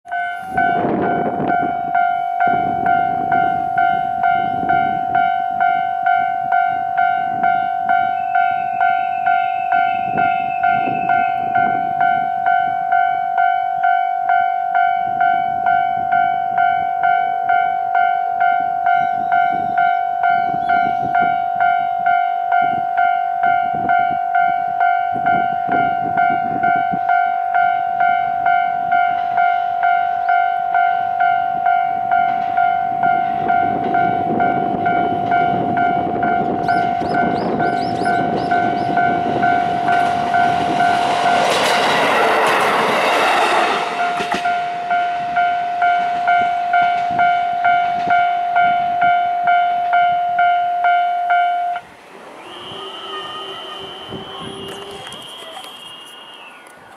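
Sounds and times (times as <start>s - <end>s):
diesel railcar rumble: 0.0s - 56.9s
level crossing bell ringing: 0.1s - 36.6s.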